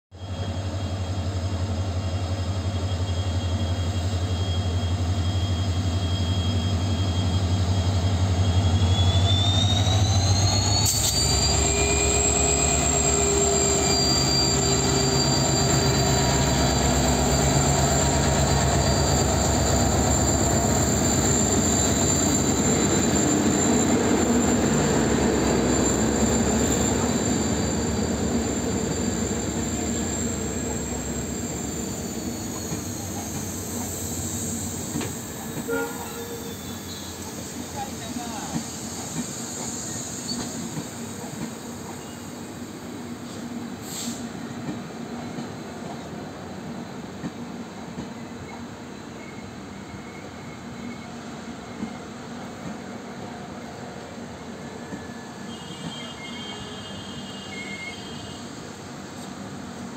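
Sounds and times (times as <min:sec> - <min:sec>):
train wheels rumbling on rail: 0:00.3 - 0:59.9
diesel locomotive engine throbbing: 0:00.9 - 0:41.8.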